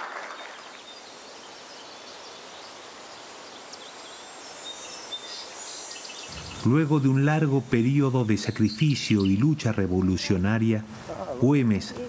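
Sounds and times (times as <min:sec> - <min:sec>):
low hiss: 0:00.0 - 0:12.0
faint bird chirps: 0:07.9 - 0:09.9.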